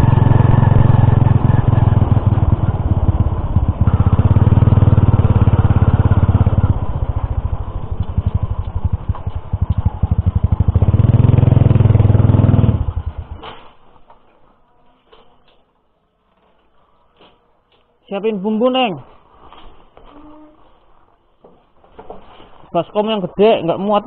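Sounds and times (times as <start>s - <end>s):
motorcycle engine running: 0.0s - 13.4s.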